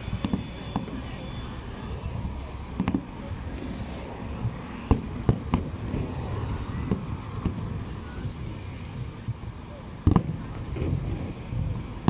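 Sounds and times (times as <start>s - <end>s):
distant firework bangs: 0.0s - 1.1s, 4.4s - 6.1s, 6.7s - 7.8s, 8.9s - 11.8s.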